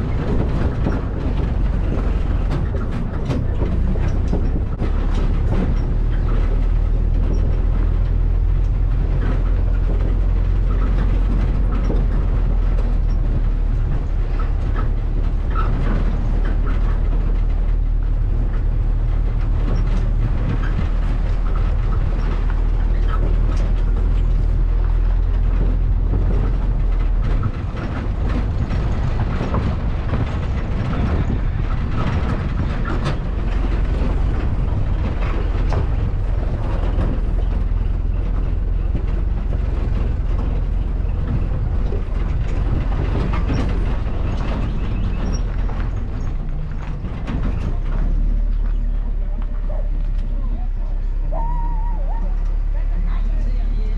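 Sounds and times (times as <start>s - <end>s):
rattling and clicking: 0.0s - 51.4s
vehicle low rumble: 0.0s - 53.9s.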